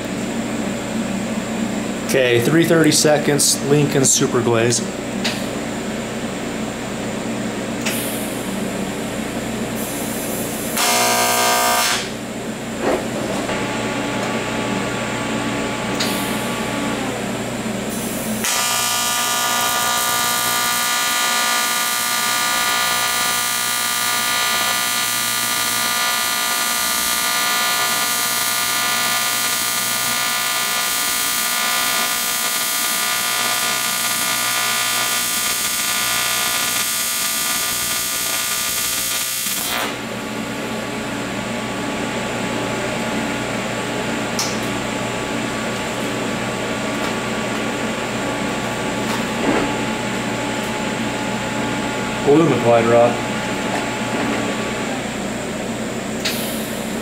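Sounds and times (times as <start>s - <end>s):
low machine hum: 0.0s - 57.0s
welding arc buzzing: 9.8s - 12.2s, 15.9s - 40.7s
brief loud buzz: 10.8s - 12.2s.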